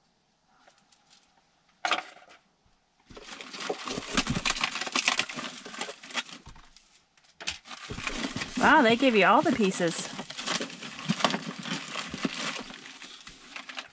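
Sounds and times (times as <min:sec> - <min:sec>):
packaging rustling and crinkling: 0:03.1 - 0:13.9.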